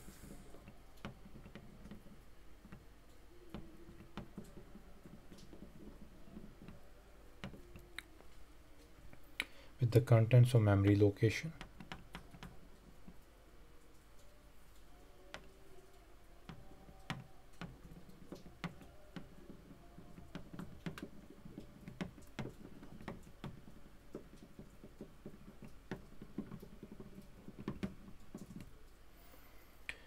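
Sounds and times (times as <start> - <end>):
faint low hum: 0.0 - 30.0
stylus tapping on tablet screen: 11.6 - 13.2, 16.4 - 28.8.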